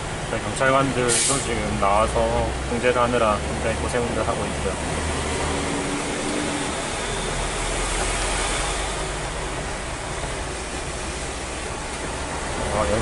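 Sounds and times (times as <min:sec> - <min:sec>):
heavy rain hiss: 0:00.0 - 0:02.7
truck engine rumble: 0:00.0 - 0:13.0.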